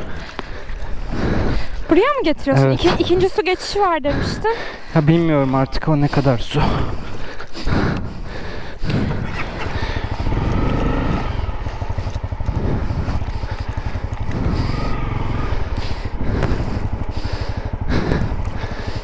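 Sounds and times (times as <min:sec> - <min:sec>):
motorcycle engine running slowly: 0:00.0 - 0:19.0.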